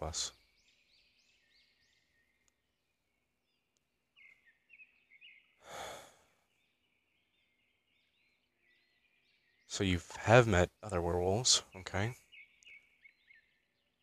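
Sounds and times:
faint bird chirping: 0.0s - 14.0s
man sighing: 5.6s - 6.3s.

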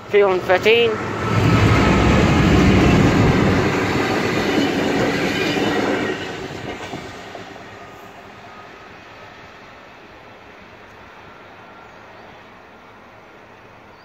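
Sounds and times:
locomotive engine rumble: 0.4s - 5.2s.

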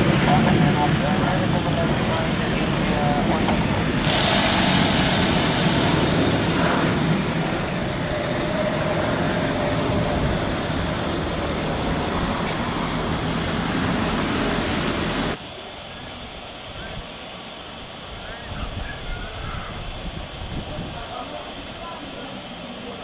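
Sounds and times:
jet airliner climbing overhead: 0.0s - 15.4s.

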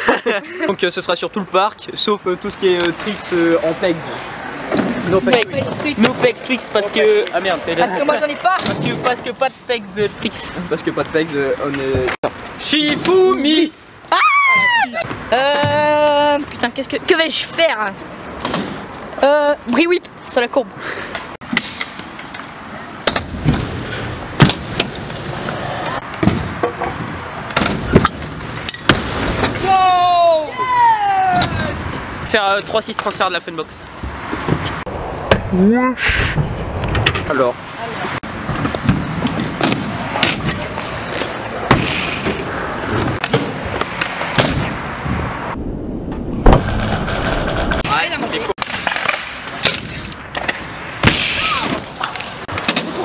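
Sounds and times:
scooter wheels rolling on concrete: 0.0s - 34.9s, 36.7s - 45.6s, 47.8s - 53.0s.

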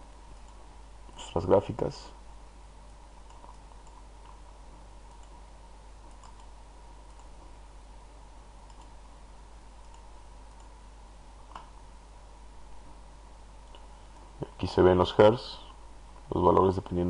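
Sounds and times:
low hum and hiss: 0.0s - 17.0s
computer mouse clicks: 0.3s - 0.6s, 2.9s - 5.4s, 6.0s - 7.5s, 8.6s - 9.0s, 9.8s - 10.8s, 11.5s - 11.8s, 13.6s - 14.3s.

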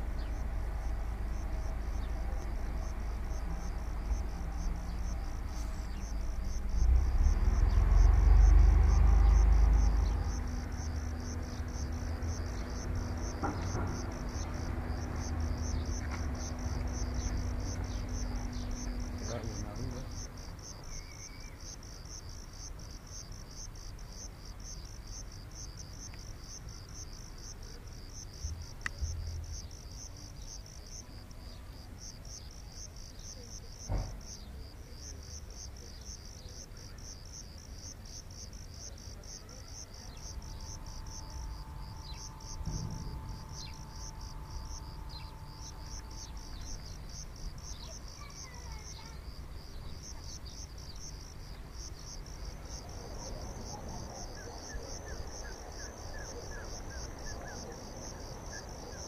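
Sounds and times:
low background rumble: 0.0s - 21.0s, 39.8s - 54.2s
faint steady hum: 0.0s - 59.0s
insect chirping: 0.0s - 59.0s
sharp knock: 42.6s - 43.8s.

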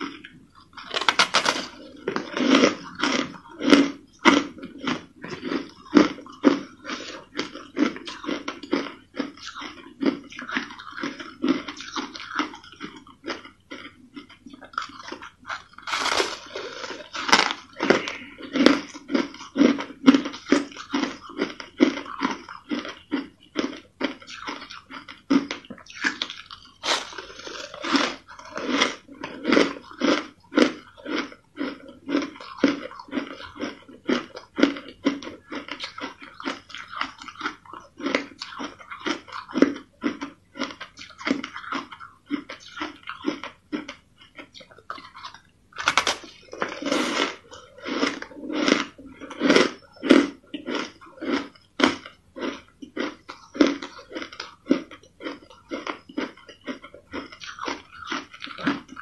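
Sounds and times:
crushed ice crunching: 0.9s - 2.6s, 15.8s - 18.0s, 26.8s - 28.1s.

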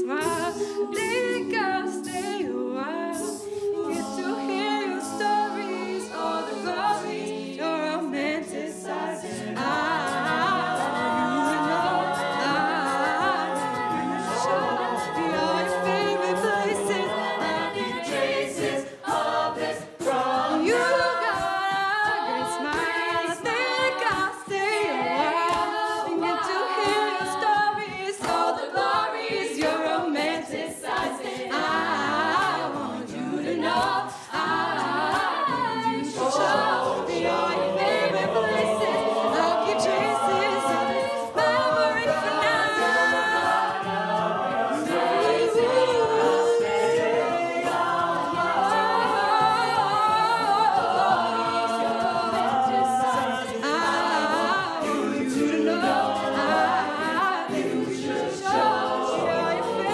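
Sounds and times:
woman singing lead: 0.0s - 44.1s
a cappella group singing: 0.0s - 59.9s
beatboxed vocal percussion: 0.0s - 59.9s.

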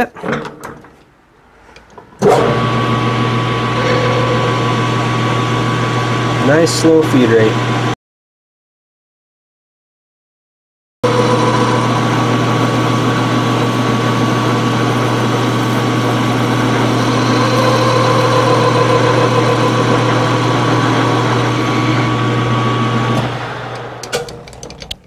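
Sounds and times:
lathe tool cutting metal: 2.4s - 7.9s, 11.0s - 24.1s
metal lathe motor hum: 2.4s - 7.9s, 11.0s - 24.3s.

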